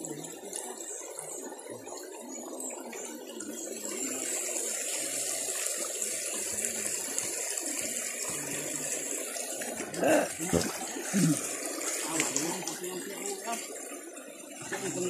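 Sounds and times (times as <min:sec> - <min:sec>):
river water rushing: 0:04.0 - 0:15.0.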